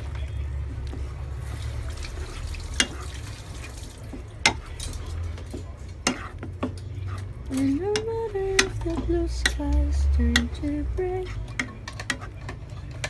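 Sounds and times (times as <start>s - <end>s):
spatula stirring thick sauce: 0.7s - 13.0s
spatula knocking against pan: 7.9s - 9.6s, 10.3s - 10.6s, 11.5s - 12.6s.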